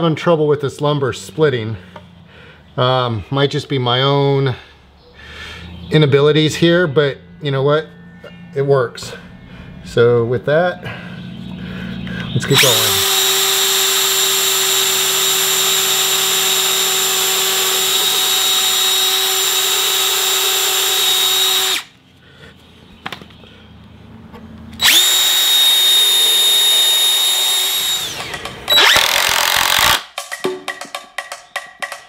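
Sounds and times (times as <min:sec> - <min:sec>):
cordless drill whining: 0:12.5 - 0:21.9, 0:24.8 - 0:30.1
impact driver hammering: 0:12.6 - 0:21.9, 0:24.8 - 0:32.0.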